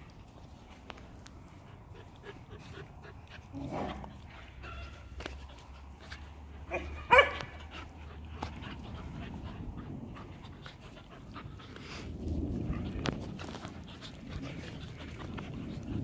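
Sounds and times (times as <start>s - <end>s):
dog barking: 6.7s - 7.6s
dog yipping: 6.7s - 7.6s.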